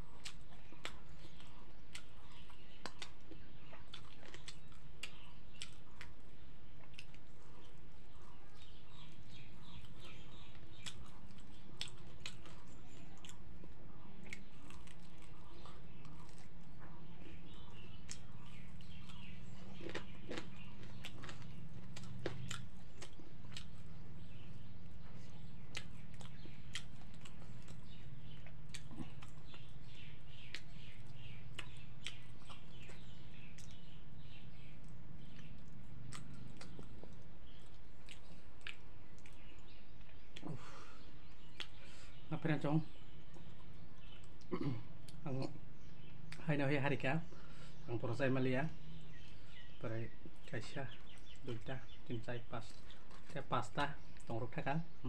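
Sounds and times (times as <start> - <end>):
person chewing: 0.0 - 33.8, 34.8 - 40.8, 41.4 - 41.8
steady low hum: 0.0 - 55.0.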